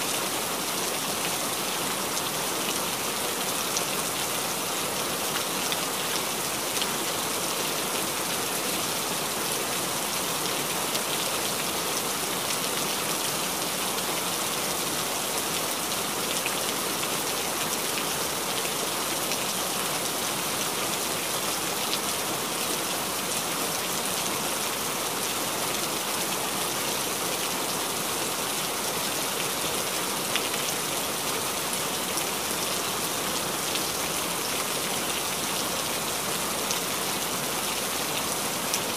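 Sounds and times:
steady rain hiss: 0.0s - 38.9s.

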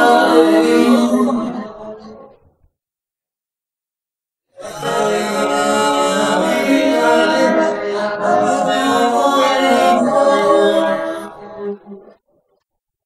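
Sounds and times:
men singing harmony: 4.6s - 11.4s.

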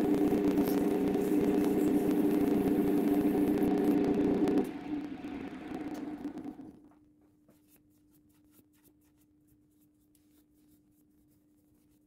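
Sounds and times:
lathe winding down: 0.0s - 6.8s
faint steady hum: 0.0s - 12.0s.

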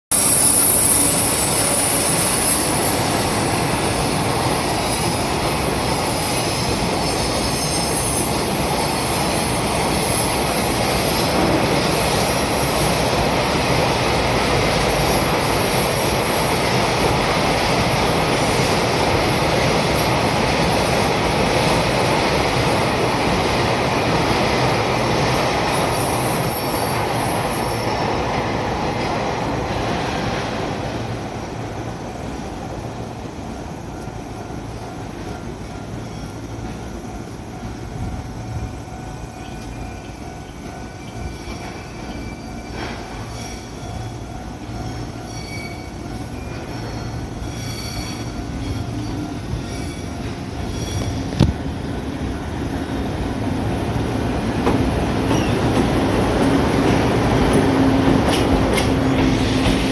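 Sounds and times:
high squeal of wheels: 0.1s - 3.3s, 4.6s - 11.2s, 25.8s - 28.0s, 40.9s - 51.5s, 55.3s - 55.8s
train wheels rumbling on rail: 0.1s - 59.9s.

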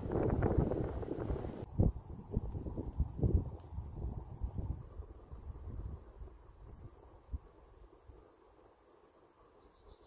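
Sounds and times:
wind buffeting microphone: 0.0s - 7.5s.

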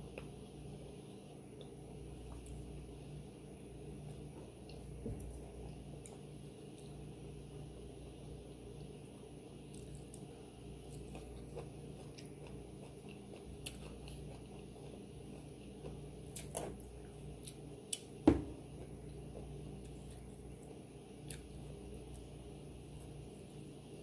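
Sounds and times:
chewing and mouth sounds: 9.7s - 18.2s, 21.2s - 21.6s.

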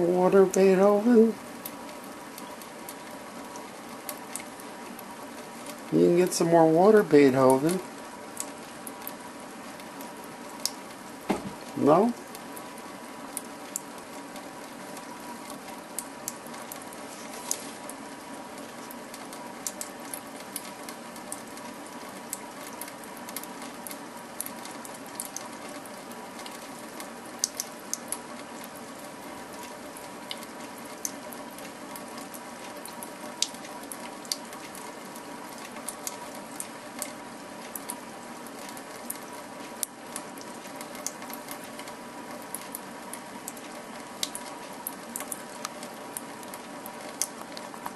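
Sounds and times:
tap water running into sink: 11.2s - 12.1s.

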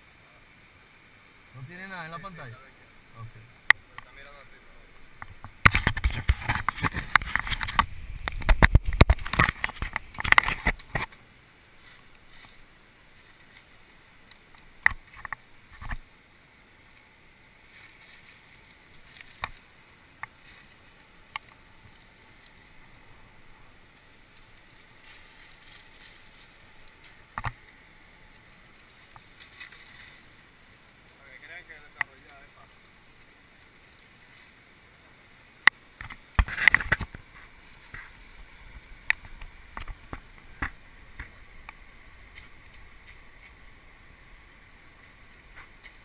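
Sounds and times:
camera being handled: 5.2s - 11.2s.

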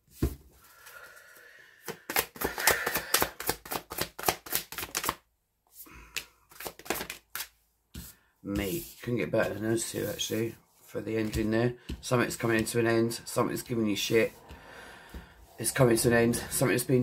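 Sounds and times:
cards clicking and slapping: 1.8s - 5.2s, 6.1s - 8.1s.

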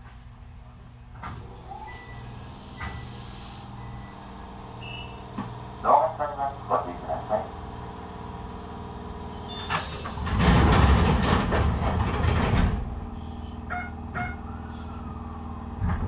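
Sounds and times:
train doors air hiss: 1.4s - 3.8s, 9.3s - 11.4s.

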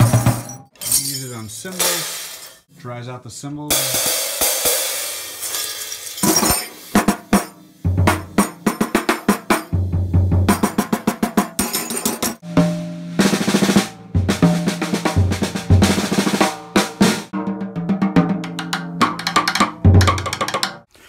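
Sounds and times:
snare drum strokes and rolls: 6.9s - 11.6s, 12.4s - 20.8s.

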